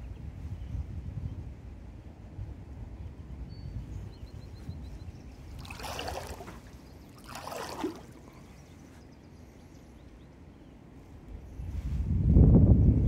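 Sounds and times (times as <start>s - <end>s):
kayak paddle splashing: 5.6s - 8.6s.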